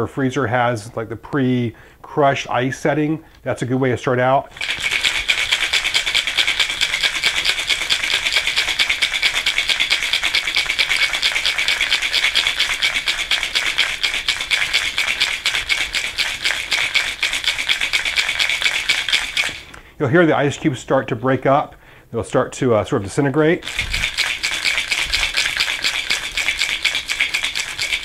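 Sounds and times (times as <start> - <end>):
ice rattling in cocktail shaker: 4.5 - 19.7, 23.6 - 28.0.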